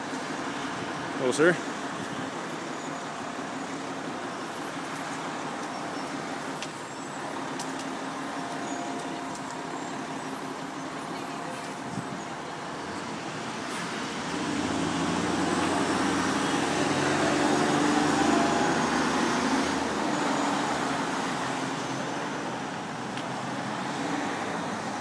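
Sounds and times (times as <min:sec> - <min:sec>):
vehicle passing: 0:13.4 - 0:22.0.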